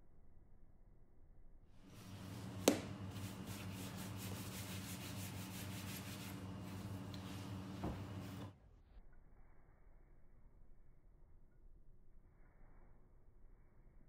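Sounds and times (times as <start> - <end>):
hands rolling dough on wood: 2.0 - 8.5
sharp knock: 2.6 - 3.0.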